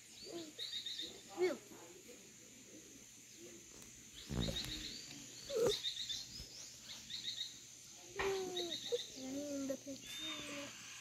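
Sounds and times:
small dog whining: 5.5s - 5.8s.

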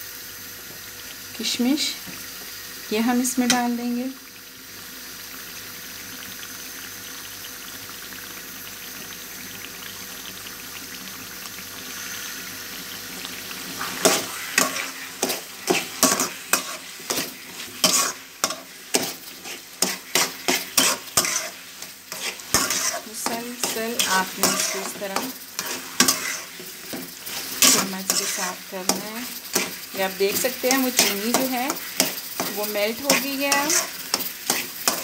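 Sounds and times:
food sizzling in pan: 0.0s - 35.0s
metal spoon scraping pan: 13.8s - 35.0s.

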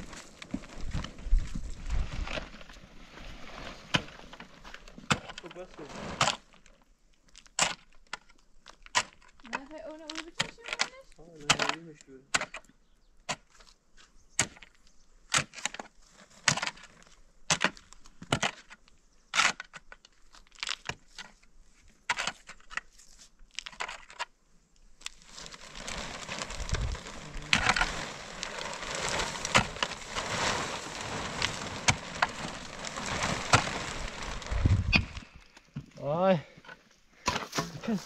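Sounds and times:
plastic sheet crinkling: 0.0s - 6.7s, 25.0s - 35.7s
pick striking stony soil: 3.8s - 6.5s, 10.2s - 12.7s, 14.4s - 21.4s, 25.0s - 36.1s, 37.2s - 38.0s.

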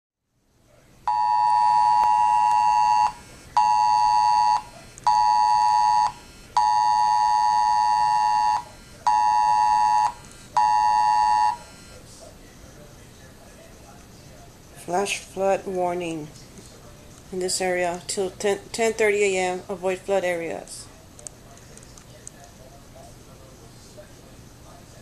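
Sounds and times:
phone emergency alert tone: 1.1s - 12.0s.

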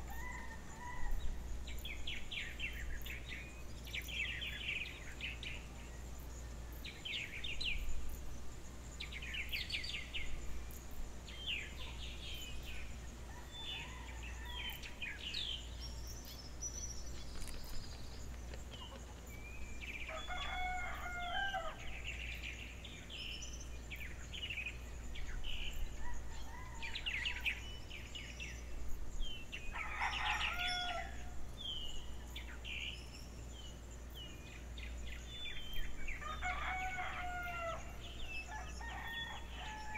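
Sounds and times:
rooster crowing: 0.0s - 1.3s, 20.0s - 21.9s, 29.7s - 31.3s, 36.2s - 39.9s
small birds chirping: 0.0s - 39.9s.

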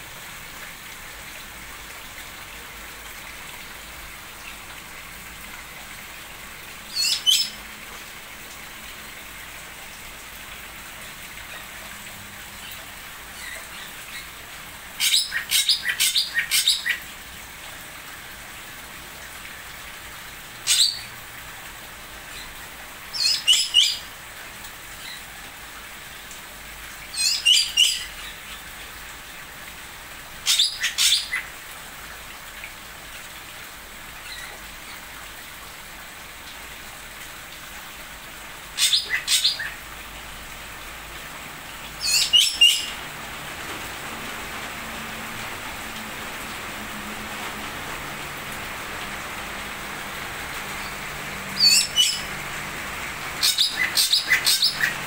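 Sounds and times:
steady background hiss: 0.0s - 55.0s
small birds chirping: 51.6s - 52.3s, 53.4s - 55.0s.

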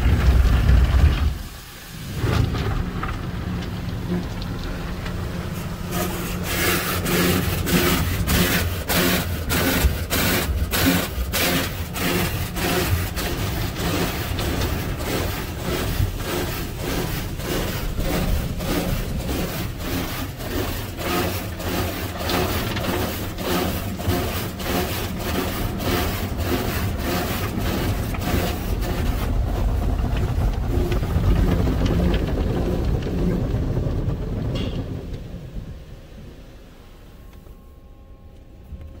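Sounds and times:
car wash brushes slapping car: 0.0s - 36.8s
low rumble: 28.0s - 37.0s.

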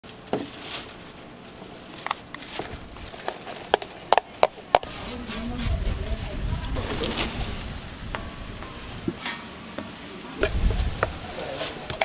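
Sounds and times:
plastic scoop clacking on plastic tubs: 2.0s - 4.9s.

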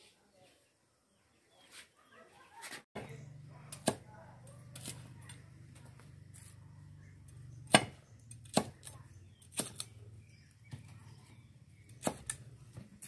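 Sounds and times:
cleaver chopping on wooden block: 7.7s - 9.9s, 11.9s - 12.4s.

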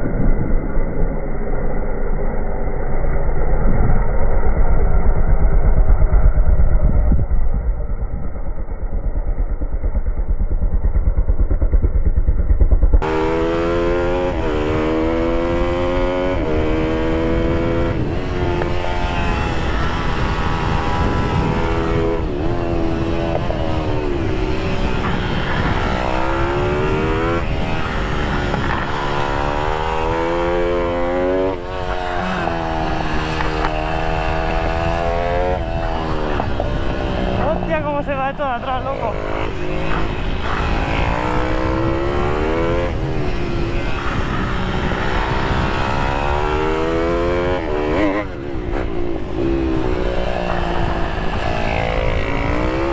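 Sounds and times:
muffled engine rumble: 0.0s - 13.0s
motorbike engine revving: 3.7s - 52.9s.

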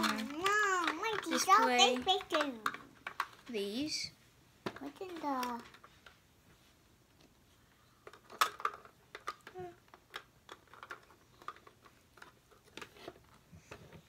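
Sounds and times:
plastic toy pieces clicking: 0.0s - 3.5s, 8.0s - 12.8s.

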